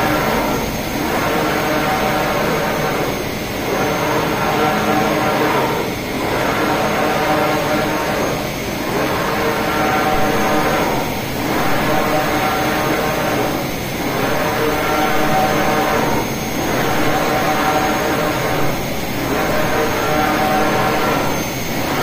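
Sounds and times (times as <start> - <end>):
printer motors and fans whirring: 0.0 - 22.0.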